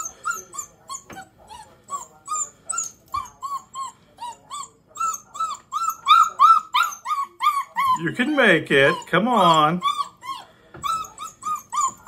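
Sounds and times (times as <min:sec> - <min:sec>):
puppy whimpering: 0:00.0 - 0:12.0.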